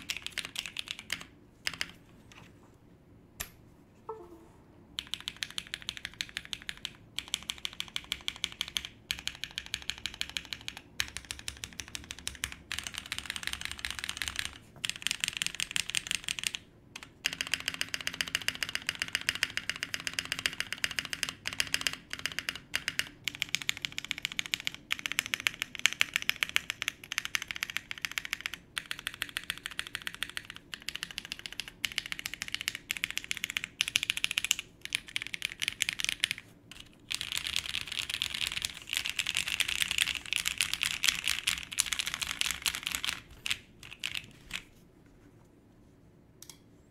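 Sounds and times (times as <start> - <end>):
mechanical keyboard typing: 0.0 - 2.0, 5.0 - 44.7.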